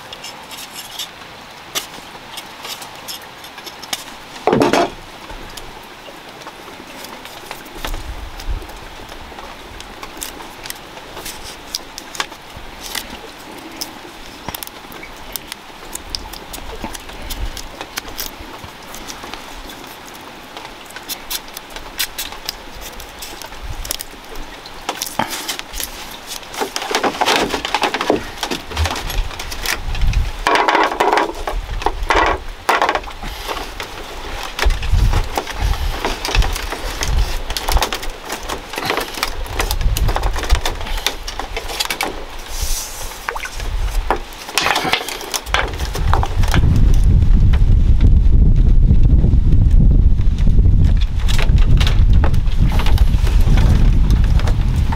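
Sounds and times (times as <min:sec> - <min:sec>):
bamboo strips clicking and creaking: 0:00.0 - 0:54.9
wind buffeting microphone: 0:07.7 - 0:10.0, 0:28.0 - 0:30.5, 0:31.3 - 0:41.6, 0:42.2 - 0:44.3, 0:45.5 - 0:54.9.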